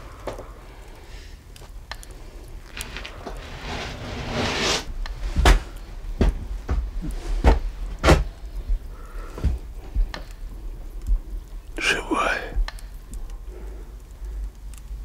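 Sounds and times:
rustling: 0.0 - 11.6
heavy footsteps on wooden floor: 5.3 - 10.1.

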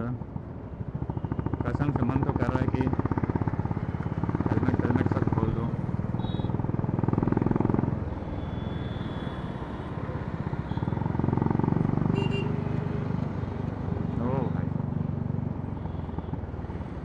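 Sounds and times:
motorcycle engine pulsing: 0.8 - 12.5.

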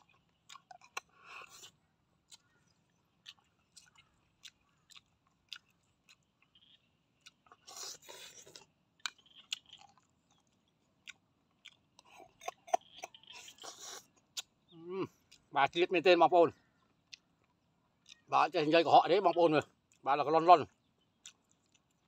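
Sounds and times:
chewing: 0.0 - 15.8, 16.8 - 18.3, 20.7 - 22.0
snail shells clicking and tapping: 12.6 - 13.5.

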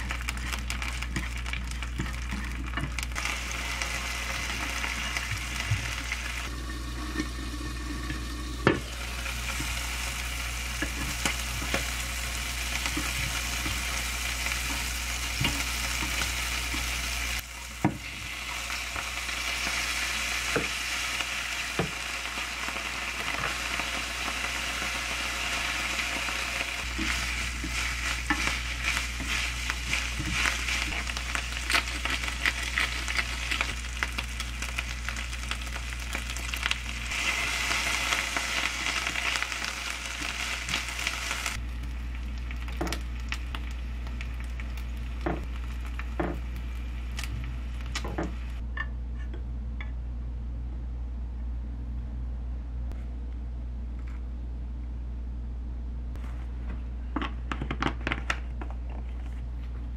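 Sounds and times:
noodles sizzling in a frying pan: 0.0 - 48.6
chopsticks scraping a pan: 26.8 - 33.7.

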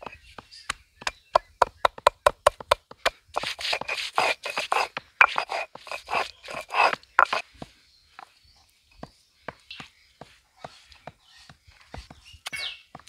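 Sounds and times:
stone roller scraping on stone slab: 3.3 - 7.5.

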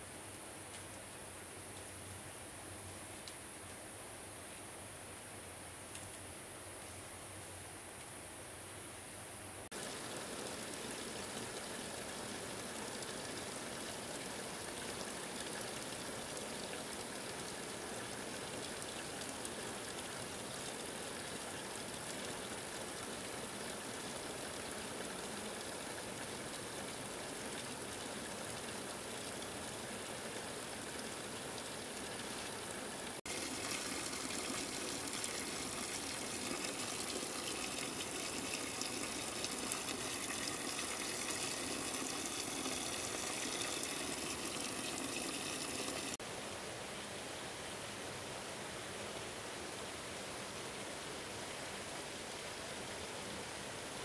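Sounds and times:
water rushing: 9.7 - 46.2.

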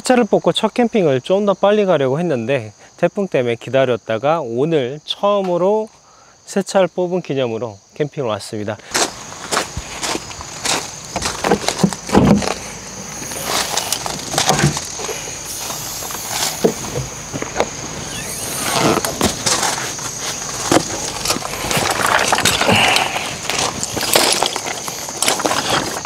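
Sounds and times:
high-pitched insect drone: 8.9 - 26.0.

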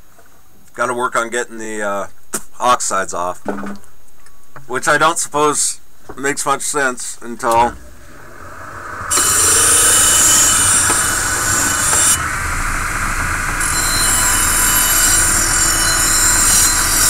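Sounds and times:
wire wheel grinding steel: 7.7 - 17.0.

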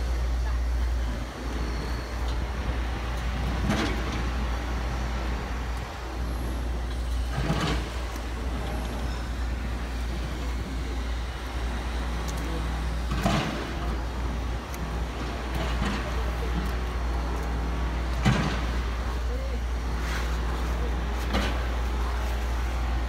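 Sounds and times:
truck engine rumbling: 0.0 - 23.0.

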